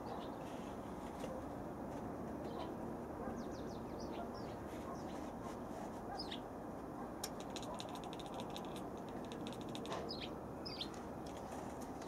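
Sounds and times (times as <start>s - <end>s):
small birds chirping: 2.4s - 5.3s, 6.1s - 6.5s, 7.2s - 11.7s
kitten chattering its jaws: 7.3s - 10.1s.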